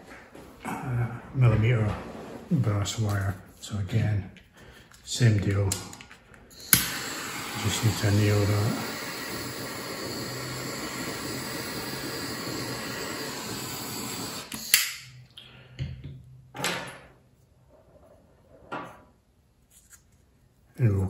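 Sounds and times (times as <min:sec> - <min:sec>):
gas torch flame hissing: 0:06.5 - 0:15.1.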